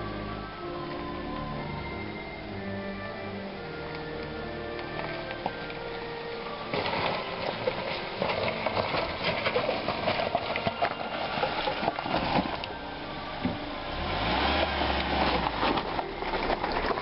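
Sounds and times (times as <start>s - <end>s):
background music: 0.0s - 17.0s
tyres crunching over gravel: 3.8s - 17.0s.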